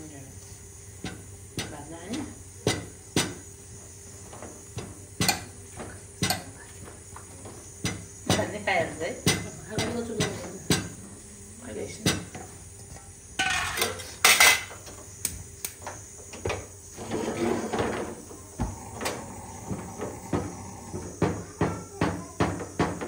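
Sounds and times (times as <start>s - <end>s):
wooden paddle knocking in pot: 1.0s - 3.5s, 4.7s - 6.6s, 7.4s - 11.0s, 12.0s - 12.5s.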